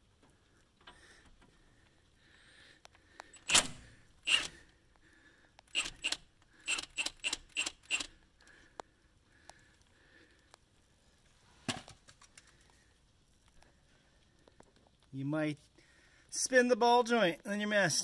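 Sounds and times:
hand wrench clicking: 3.3s - 4.6s, 5.7s - 8.1s.

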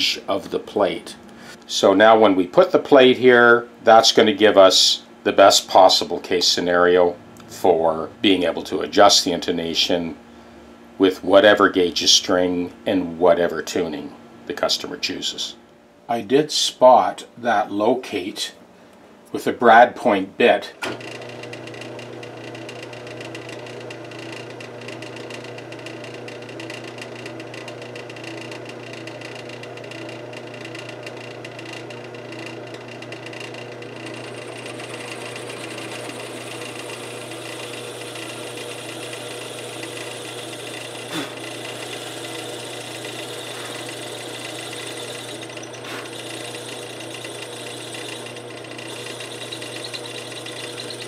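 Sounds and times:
drill press boring into wood: 20.9s - 51.0s.

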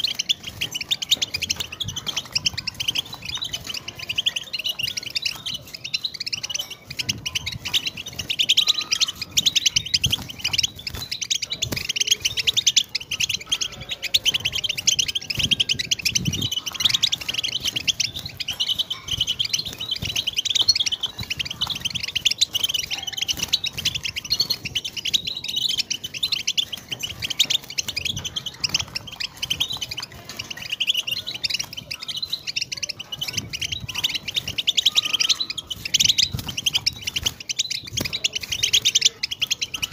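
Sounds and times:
finch twittering song: 0.0s - 39.9s.

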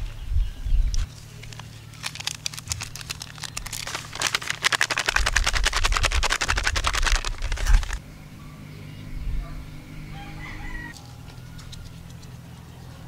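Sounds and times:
seasoning packet rattling: 1.4s - 8.0s.

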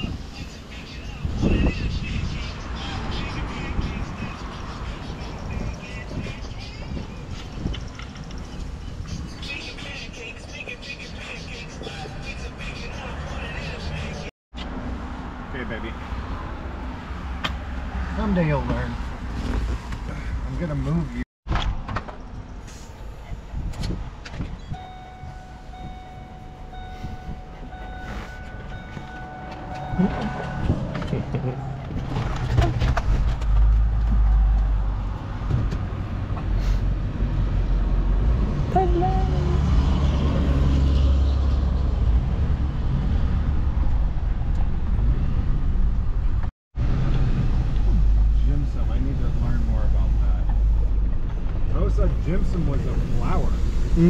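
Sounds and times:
truck engine rumbling: 18.6s - 54.0s
high-pitched tone: 24.8s - 30.9s.

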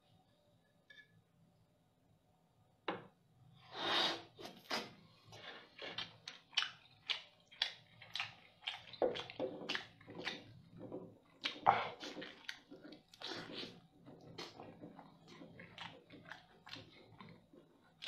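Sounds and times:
wet chewing and lip-smacking: 5.4s - 18.0s
person slurping: 11.4s - 18.0s.

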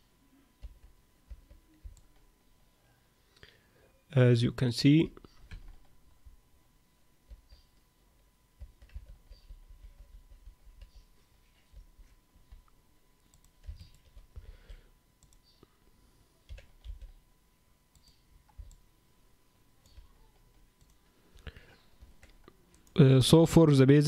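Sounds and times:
computer mouse and keyboard clicks: 8.6s - 11.9s, 12.5s - 14.5s.

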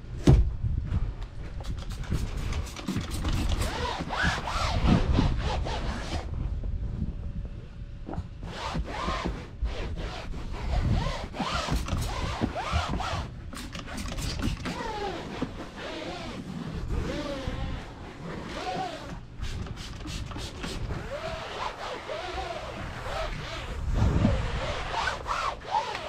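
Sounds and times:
spray bottle spritzes: 1.6s - 3.7s, 13.6s - 14.8s
towel rubbing on vinyl: 1.6s - 6.3s, 8.4s - 26.0s.

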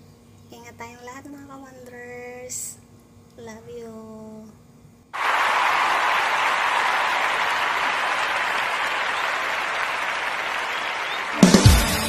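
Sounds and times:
crowd applause: 5.2s - 12.0s
music with heavy drum beat: 11.3s - 12.0s.

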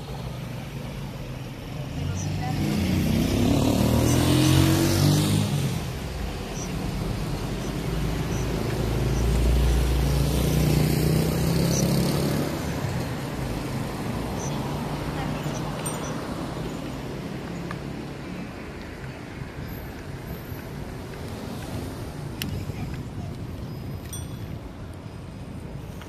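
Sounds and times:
steady traffic hum: 0.0s - 26.0s
car driving past: 1.5s - 18.0s
small motorcycle passing: 1.7s - 18.5s.

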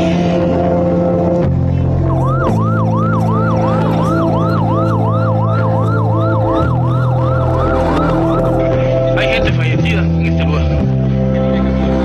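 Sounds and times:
background music chords: 0.0s - 12.0s
emergency siren wailing: 1.1s - 9.6s.

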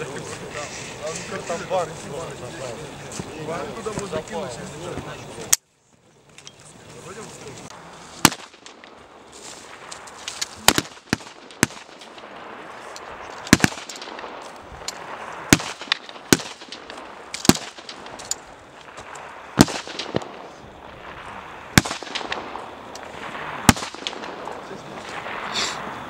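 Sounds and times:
rifle shots: 8.2s - 25.7s.

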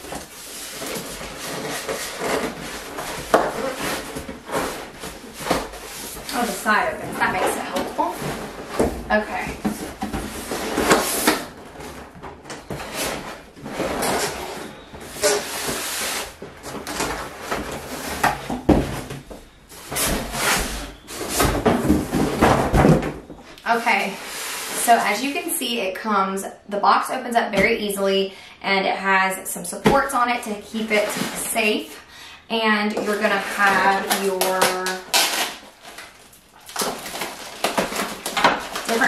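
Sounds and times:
cardboard rubbing and scraping: 0.0s - 19.1s.

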